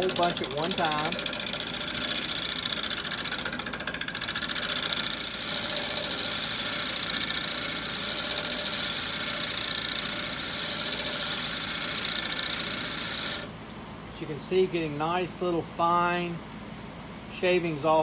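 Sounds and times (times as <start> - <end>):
lathe running: 0.0 - 13.5.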